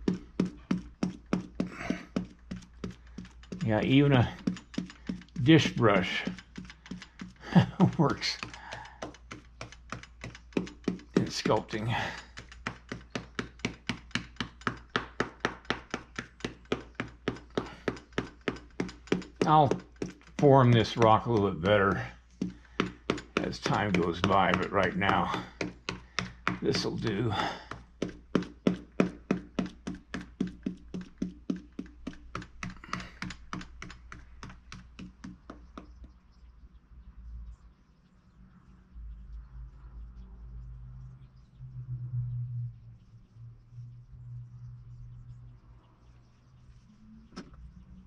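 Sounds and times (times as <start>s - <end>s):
brush tapping into clay: 0.0s - 36.2s.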